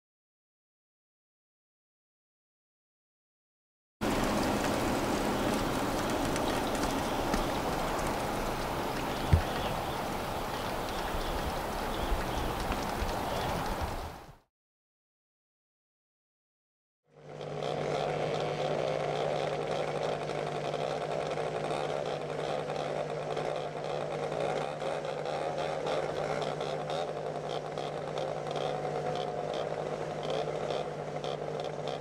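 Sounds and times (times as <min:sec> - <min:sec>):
snowmobile engines idling: 0:04.0 - 0:14.2.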